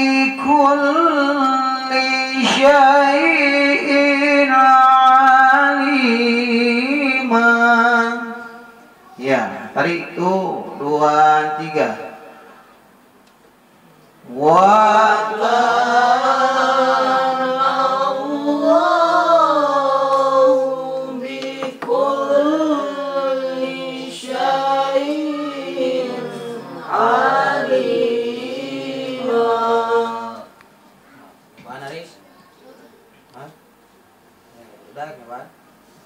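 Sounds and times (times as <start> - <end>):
man chanting melodic recitation: 0.0 - 8.6, 9.2 - 12.2.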